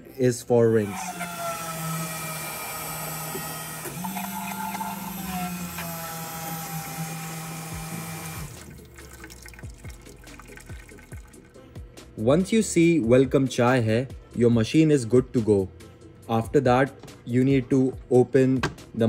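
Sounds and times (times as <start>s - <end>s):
pump humming: 1.0s - 11.3s
water dripping: 8.6s - 11.4s.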